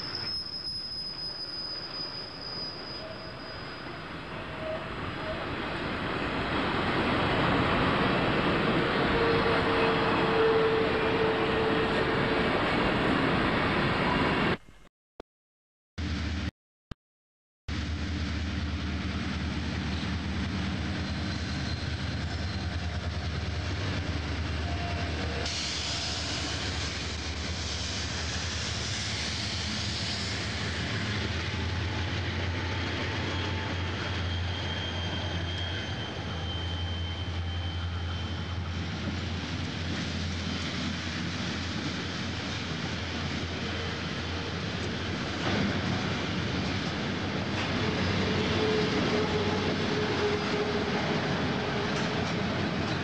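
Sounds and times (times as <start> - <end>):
train wheels rumbling on rails: 17.7 - 53.0.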